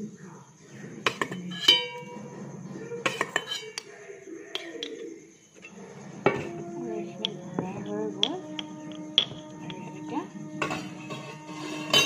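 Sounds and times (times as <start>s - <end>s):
containers clinking: 4.6s - 12.0s.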